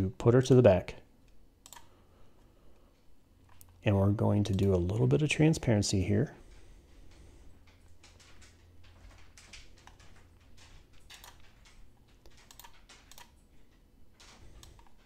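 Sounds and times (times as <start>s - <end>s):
computer mouse and keyboard clicking: 1.6s - 1.9s, 9.3s - 13.4s, 14.2s - 15.0s.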